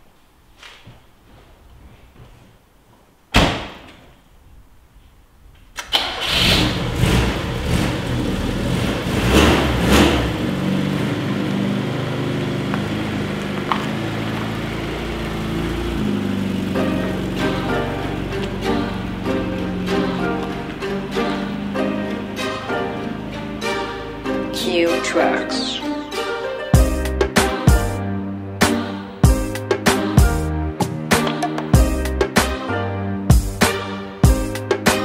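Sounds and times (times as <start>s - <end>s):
car door slamming: 3.3s - 4.0s
car engine starting and idling: 5.7s - 32.5s.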